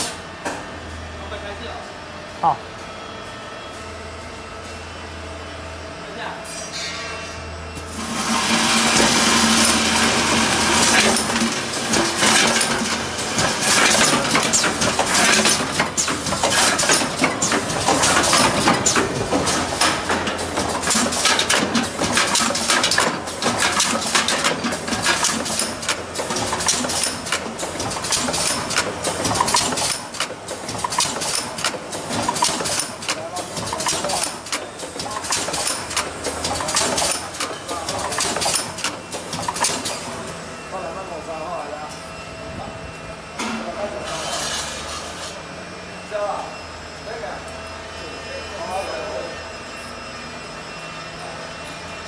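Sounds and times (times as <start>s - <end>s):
metallic clatter of cans and machines: 6.7s - 40.2s.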